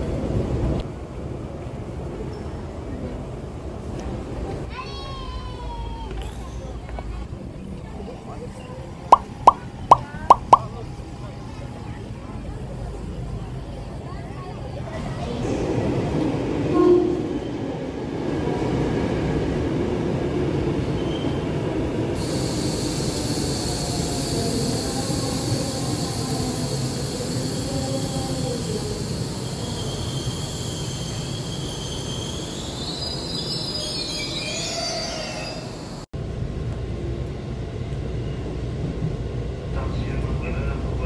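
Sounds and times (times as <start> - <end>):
rumble inside train carriage: 0.0 - 30.1, 35.7 - 41.0
train wheels rumbling on rail: 0.0 - 41.0
high hiss and squeal: 22.2 - 36.1.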